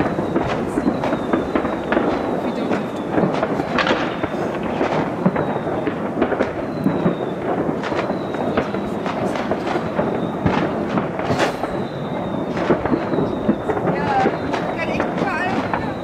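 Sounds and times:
fireworks crackling and banging: 0.0 - 16.0.

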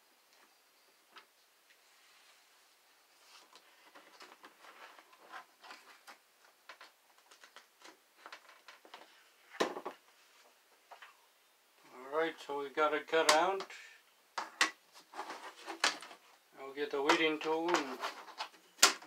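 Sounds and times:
vinyl sheet crackling: 14.8 - 19.0.

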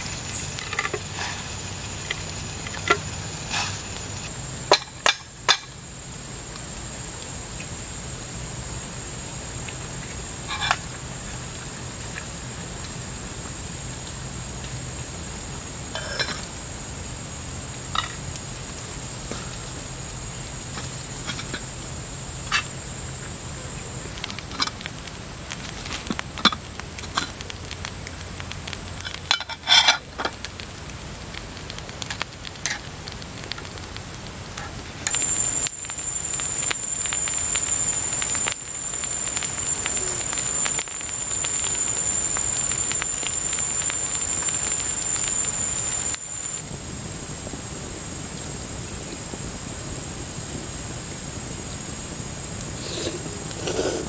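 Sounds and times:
campfire crackling: 0.0 - 54.0
high-pitched insect drone: 35.1 - 47.0.

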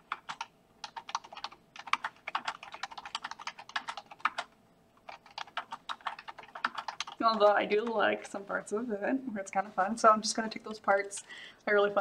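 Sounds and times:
typing on computer keyboard: 0.0 - 8.4.

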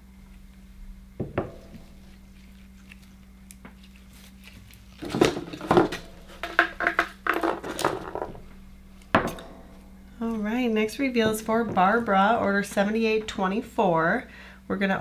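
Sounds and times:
faint steady hum: 0.0 - 15.0
clattering knocks on board: 5.0 - 8.4
bowl set down on wooden board: 9.1 - 9.9.

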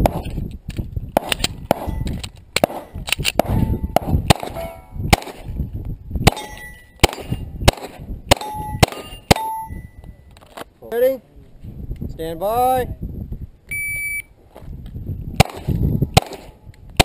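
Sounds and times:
metallic dings of steel plates: 6.4 - 7.0, 8.4 - 10.1.

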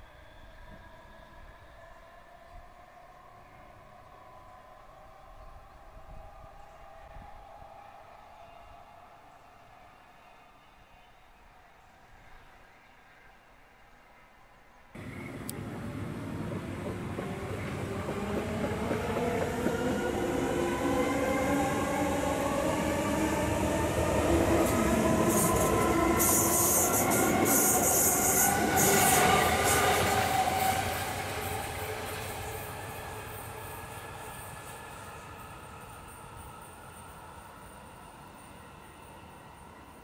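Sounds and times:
electric train motor whine: 15.0 - 34.6.

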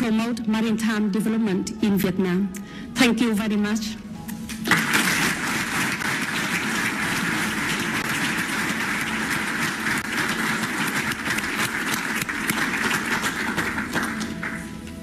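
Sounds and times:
audience clapping: 4.5 - 15.0.

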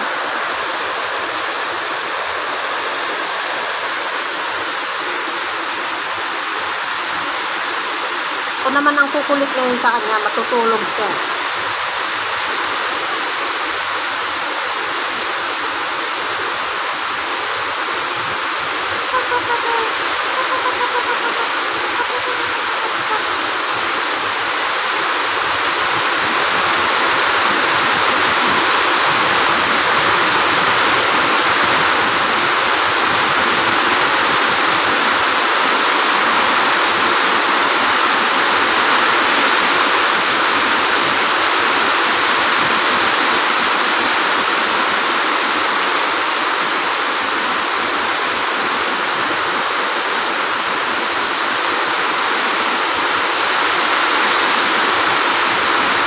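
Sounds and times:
faint falling tonal call: 19.1 - 23.5.

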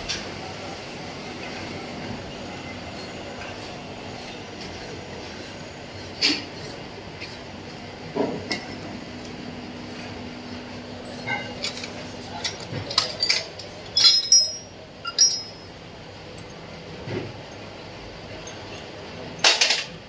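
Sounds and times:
metal tools clinking: 11.0 - 15.8.

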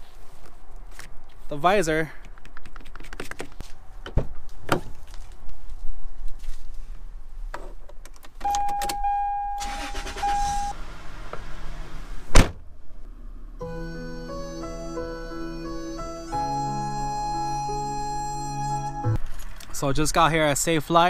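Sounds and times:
ignition warning tone: 8.4 - 10.8, 13.6 - 19.2
engine starting: 9.6 - 12.3
car door slamming shut: 12.3 - 12.7.

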